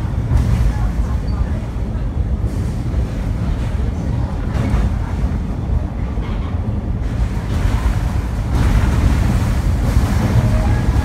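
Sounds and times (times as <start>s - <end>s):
train rumbling over bridge: 0.0s - 11.0s.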